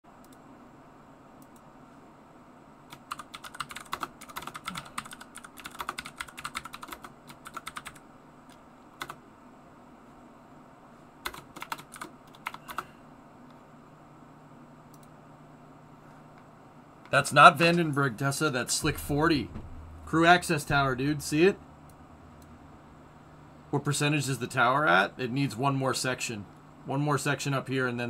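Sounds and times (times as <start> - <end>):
typing on computer keyboard: 2.9 - 9.2, 11.2 - 12.9.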